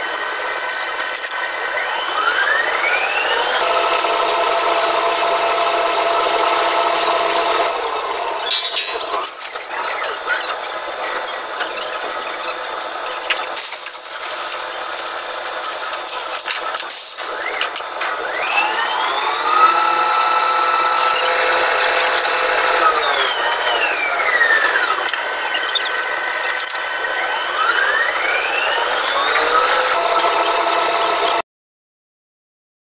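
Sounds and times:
electric motor whine: 0.0s - 12.8s, 17.3s - 31.4s.

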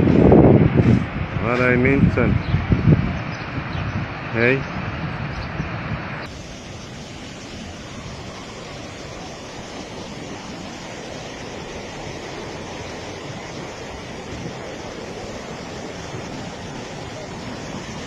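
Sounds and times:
floodwater rushing: 5.8s - 18.0s.

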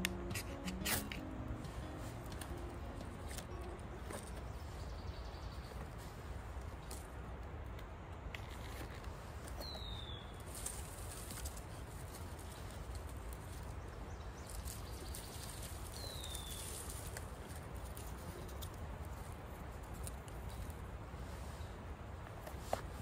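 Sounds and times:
steady outdoor hiss: 0.0s - 23.0s
twigs clicking on fire: 14.4s - 21.0s.

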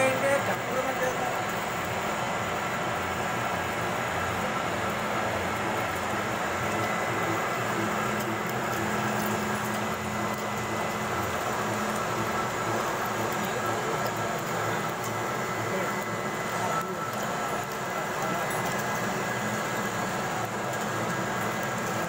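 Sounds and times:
metal lathe humming: 0.0s - 21.6s.

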